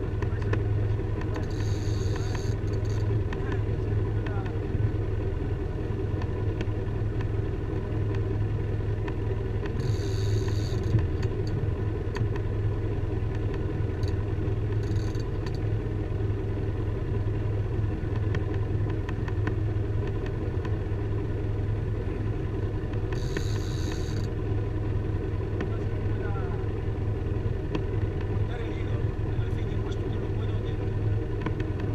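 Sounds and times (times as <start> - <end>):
boat engine humming: 0.0 - 31.9
high-pitched buzz: 1.4 - 3.1, 9.8 - 11.0, 23.2 - 24.3.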